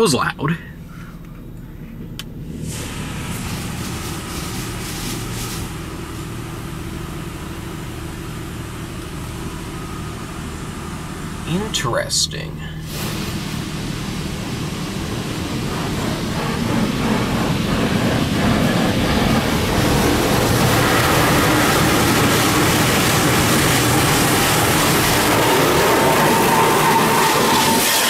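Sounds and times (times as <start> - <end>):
water jets spraying on windshield: 2.7 - 6.8, 12.9 - 28.0.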